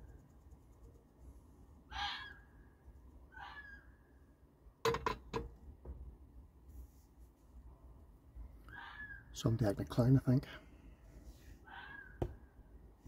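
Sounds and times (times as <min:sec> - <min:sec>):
distant cries: 0:01.8 - 0:04.4, 0:08.5 - 0:09.4, 0:11.6 - 0:12.8.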